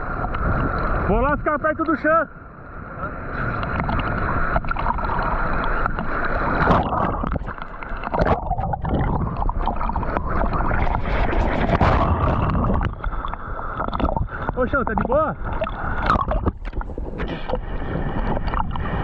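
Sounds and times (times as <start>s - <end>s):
seawater splashing and sloshing: 3.1s - 19.0s.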